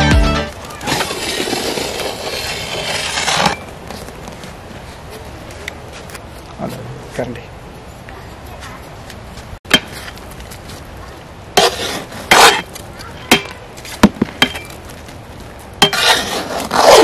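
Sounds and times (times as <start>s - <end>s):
metal ladle scraping cooking pot: 15.8s - 17.0s.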